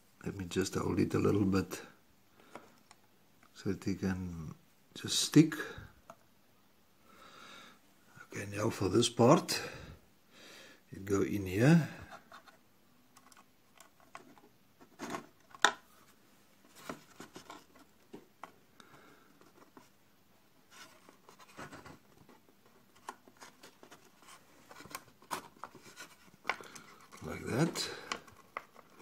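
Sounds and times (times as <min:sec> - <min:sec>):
wooden toy parts clicking and tapping: 0:13.1 - 0:15.8.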